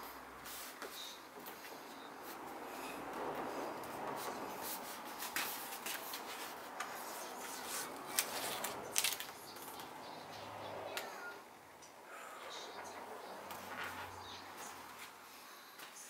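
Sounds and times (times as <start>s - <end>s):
steady background noise: 0.0s - 16.0s
hands rubbing plastic: 3.3s - 9.9s.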